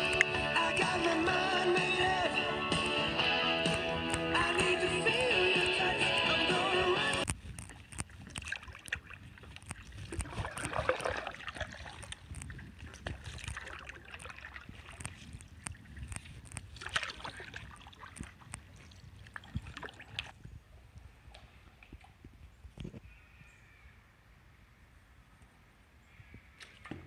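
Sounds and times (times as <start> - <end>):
water dripping: 0.0 - 1.4, 7.1 - 20.4
small clicks and knocks: 7.2 - 10.7
paddle strokes in water: 7.2 - 20.4.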